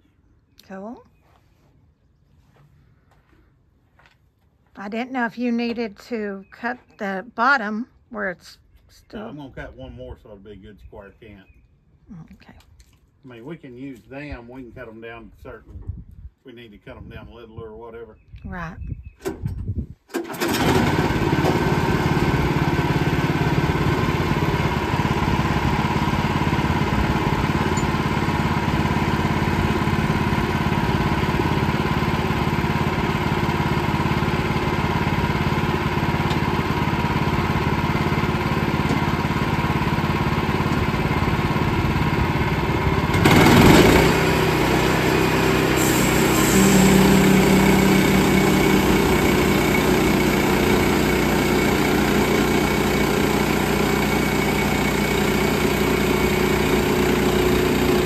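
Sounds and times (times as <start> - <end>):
sawmill engine sawing log: 20.4 - 58.0.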